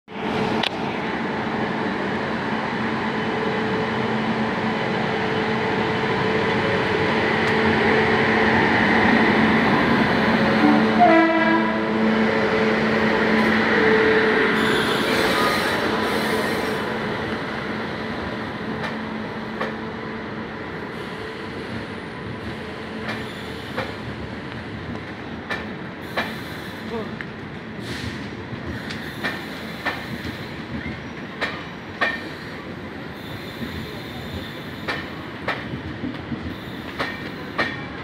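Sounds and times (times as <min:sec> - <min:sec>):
electric locomotive hum: 0:00.1 - 0:27.8
passenger coaches rolling past: 0:00.1 - 0:38.0
train rolling noise: 0:00.1 - 0:38.0.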